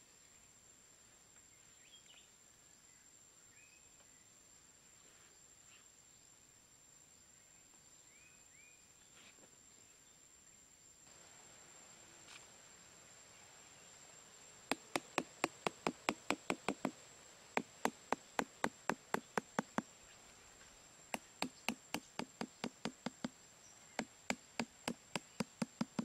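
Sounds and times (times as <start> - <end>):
faint high-pitched whine: 0.0 - 26.0
small hammer tapping stakes: 14.7 - 17.0, 17.6 - 19.9, 21.1 - 23.4, 24.0 - 26.0.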